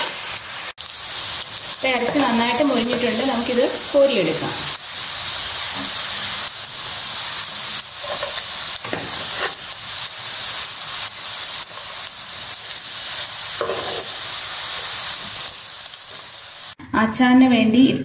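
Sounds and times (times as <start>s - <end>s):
meat sizzling in a frying pan: 0.0s - 16.8s
metal spoon scraping a pan: 8.0s - 9.7s, 13.6s - 14.2s.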